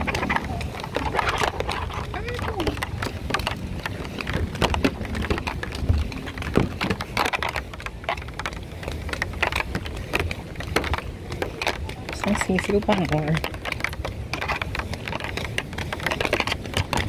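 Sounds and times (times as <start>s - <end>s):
low rumble: 0.0s - 12.4s
rain falling: 0.0s - 13.9s
water dripping and tapping: 0.0s - 17.0s.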